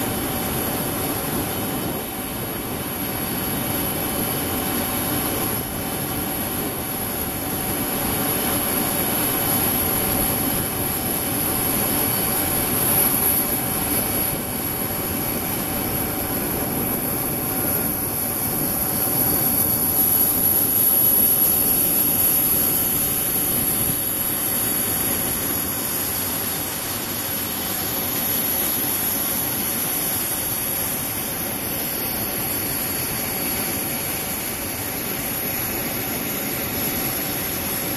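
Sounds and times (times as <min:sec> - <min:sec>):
jet engines whining: 0:00.0 - 0:37.9.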